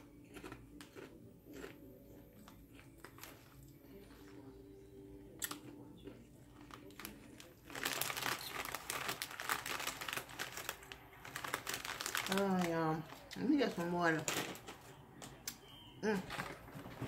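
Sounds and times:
plastic snack bag crinkling: 0:06.4 - 0:15.0.

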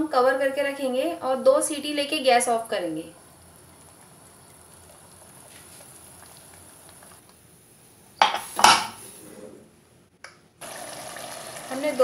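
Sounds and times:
metal lid clanking: 0:08.2 - 0:09.0.

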